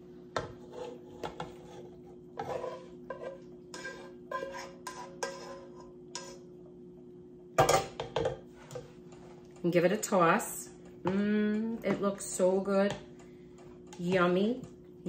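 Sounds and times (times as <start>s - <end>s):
faint steady hum: 0.0s - 15.0s
spoon scraping a skillet: 0.4s - 6.5s.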